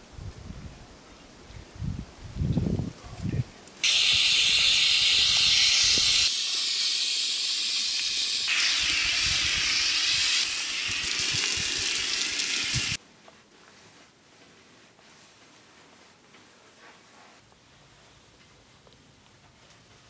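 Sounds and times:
hose spray wand hissing: 0:03.8 - 0:13.0.

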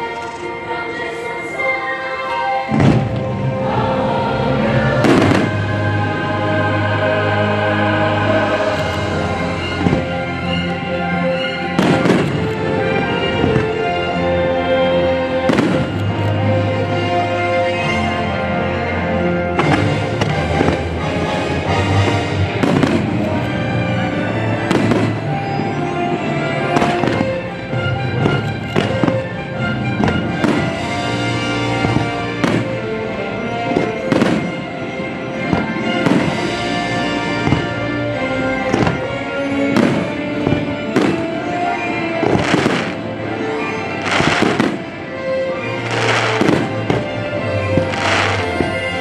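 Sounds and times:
music soundtrack: 0:00.0 - 0:49.0.

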